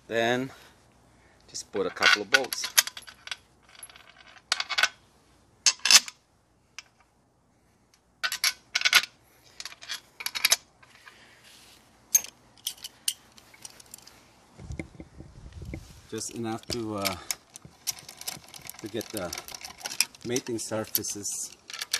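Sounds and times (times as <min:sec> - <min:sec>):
metal bolts clinking: 0:01.9 - 0:05.0, 0:08.2 - 0:10.7, 0:12.1 - 0:14.2, 0:16.2 - 0:21.9.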